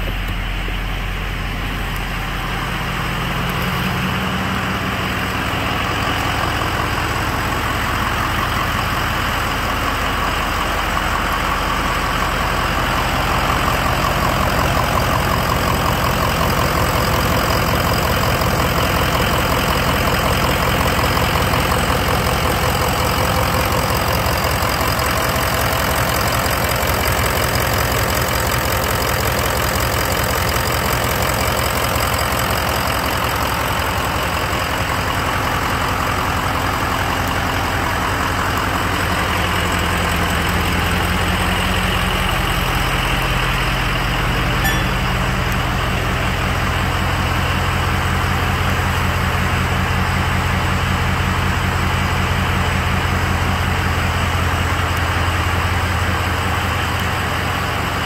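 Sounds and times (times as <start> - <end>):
diesel truck engine idling: 0.0 - 58.0.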